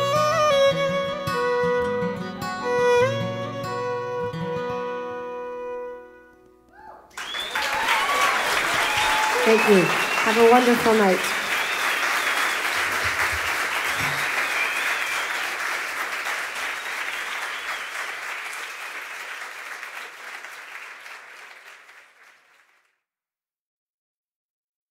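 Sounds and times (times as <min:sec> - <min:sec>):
audience applauding: 0:07.1 - 0:22.9.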